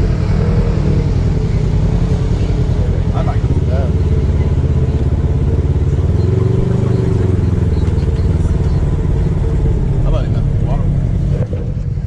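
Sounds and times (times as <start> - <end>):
off-road vehicle engine running: 0.0 - 12.0.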